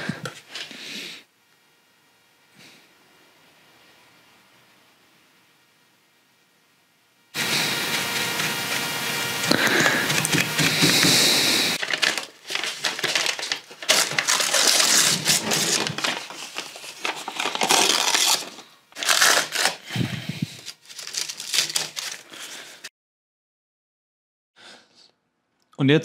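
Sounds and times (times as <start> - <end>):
paper ripping and crinkling: 7.4 - 22.9.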